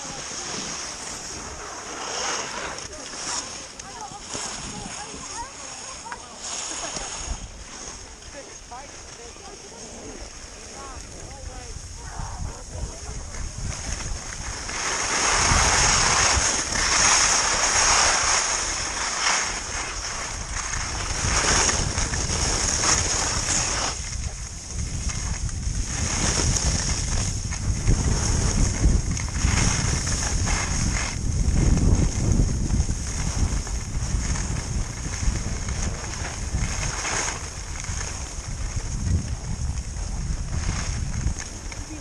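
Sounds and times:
skis scraping over snow: 0.0s - 42.0s
wind buffeting microphone: 0.0s - 42.0s.

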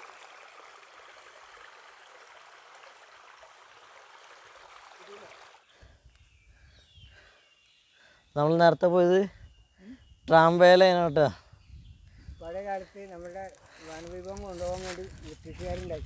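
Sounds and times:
stream water flowing: 0.0s - 5.7s.

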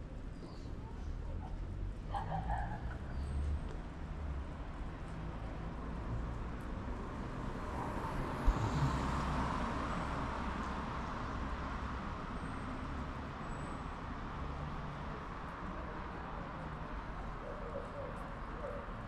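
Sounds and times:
traffic hum: 0.0s - 19.0s
vehicle passing: 7.2s - 10.5s.

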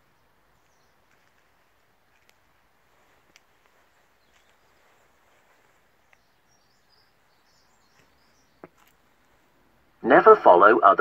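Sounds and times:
faint ticks: 0.6s - 6.3s
high bird chirps: 3.7s - 9.4s.

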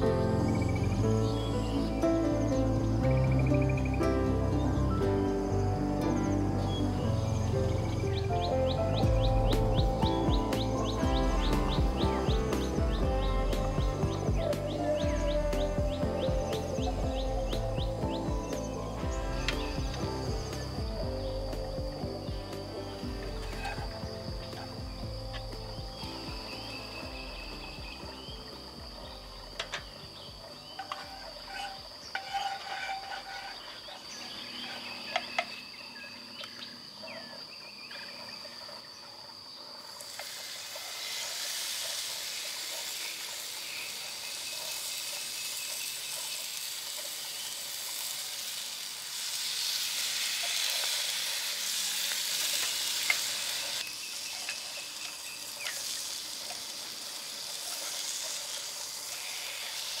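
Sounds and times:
meat sizzling in hot oil: 29.8s - 34.9s, 39.6s - 60.0s.

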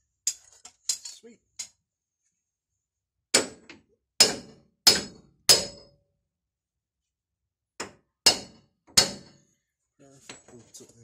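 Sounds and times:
hammer striking steel: 4.2s - 6.0s, 8.2s - 9.4s.

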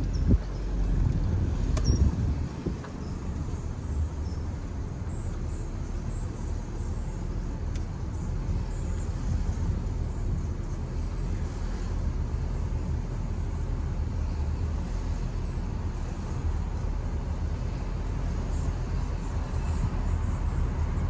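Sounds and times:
car driving rumble: 0.0s - 21.0s.

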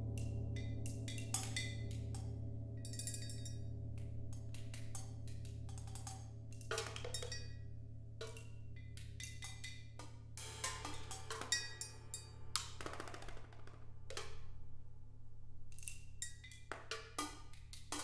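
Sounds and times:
stick strokes on percussion: 8.2s - 12.8s.

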